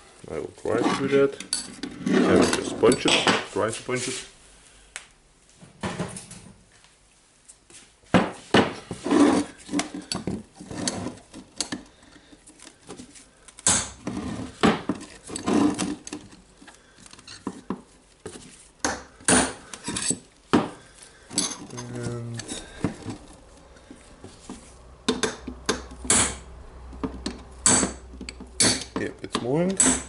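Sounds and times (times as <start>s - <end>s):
sharp metal knocks and clinks: 21.3s - 22.6s.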